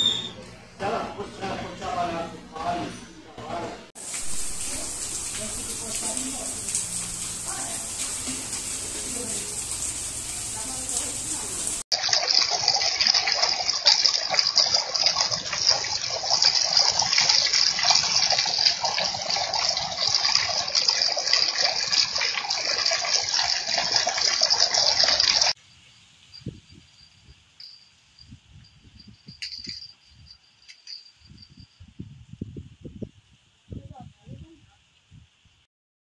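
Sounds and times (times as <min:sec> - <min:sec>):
heavy rain on pavement: 0:04.0 - 0:11.8
high insect chirring: 0:25.6 - 0:32.1.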